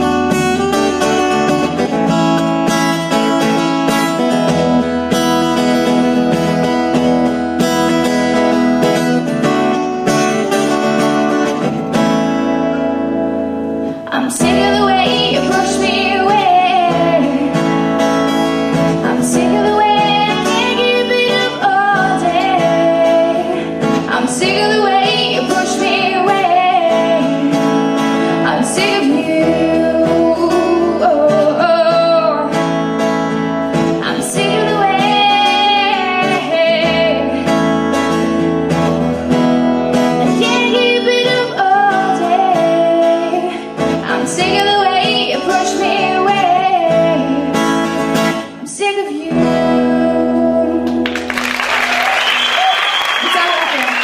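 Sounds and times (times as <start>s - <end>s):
strummed acoustic guitar: 0.0s - 51.4s
woman singing: 14.0s - 32.8s, 33.9s - 37.6s, 40.1s - 51.2s.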